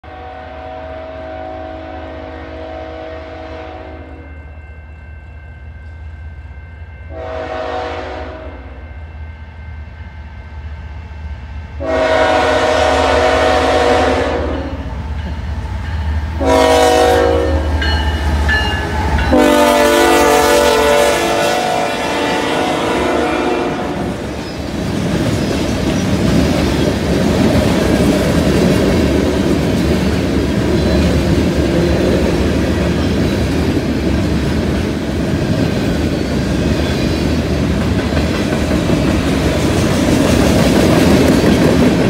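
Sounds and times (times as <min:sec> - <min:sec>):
train air horn blasts: 0:00.0 - 0:04.5, 0:07.1 - 0:09.0, 0:11.8 - 0:14.9, 0:16.4 - 0:17.9, 0:19.2 - 0:24.3.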